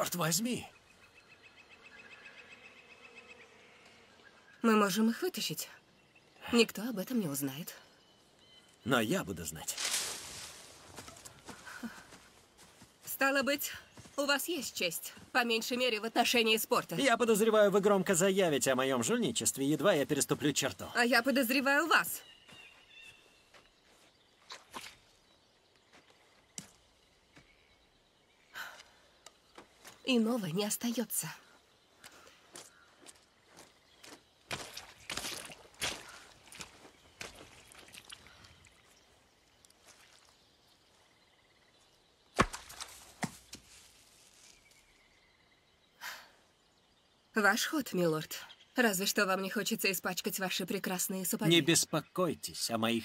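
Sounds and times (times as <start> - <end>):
rustles: 9.5 - 13.1, 42.4 - 45.0
ball bouncing on ground: 42.4 - 43.6.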